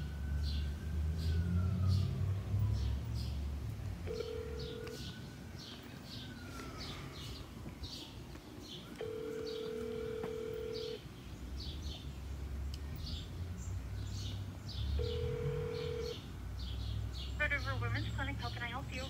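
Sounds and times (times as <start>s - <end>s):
birds chirping: 0.0s - 19.0s
telephone ringback tone: 4.1s - 5.0s, 9.0s - 11.0s, 15.0s - 16.2s.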